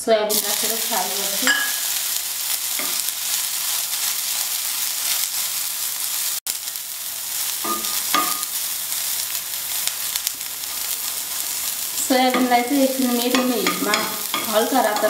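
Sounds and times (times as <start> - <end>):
food sizzling in hot oil: 0.3 - 15.0
spoon scraping iron pan: 1.4 - 1.8, 7.6 - 8.6, 10.6 - 15.0.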